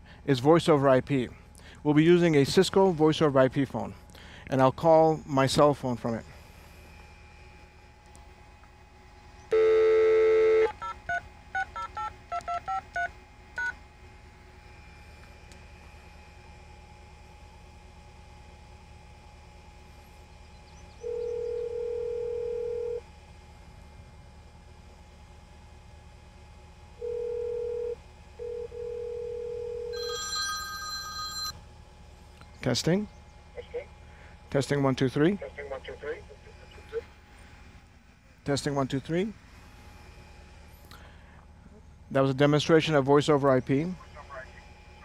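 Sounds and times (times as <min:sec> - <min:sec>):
phone dial tone: 0:09.5 - 0:13.8, 0:21.1 - 0:23.0, 0:27.0 - 0:31.6.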